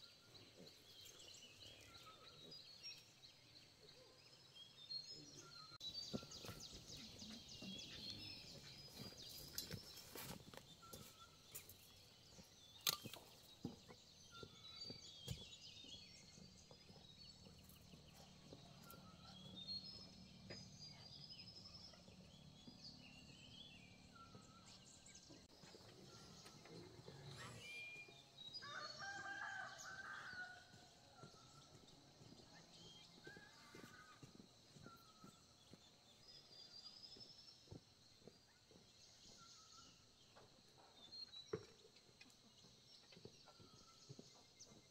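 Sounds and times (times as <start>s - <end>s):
rooster crowing: 28.6s - 30.8s.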